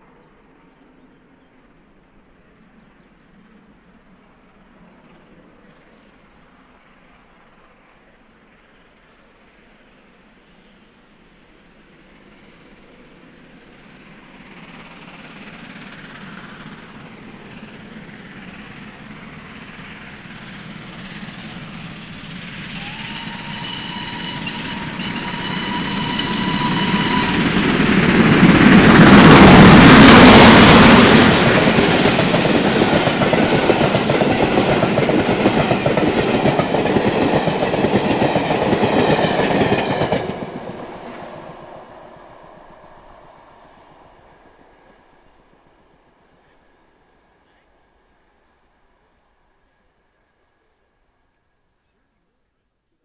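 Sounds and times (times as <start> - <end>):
steam locomotives passing: 0.0 - 52.2
steam whistle: 22.7 - 27.8.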